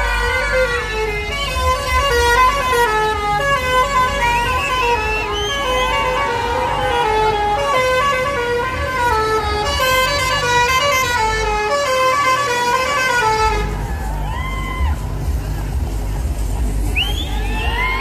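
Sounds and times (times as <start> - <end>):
musical vehicle horn playing a tune: 0.0 - 14.0.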